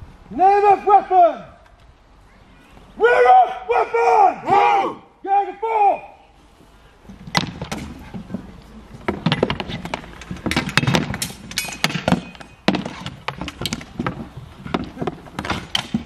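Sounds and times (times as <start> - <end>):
wooden staves clacking on shields: 7.1 - 16.0.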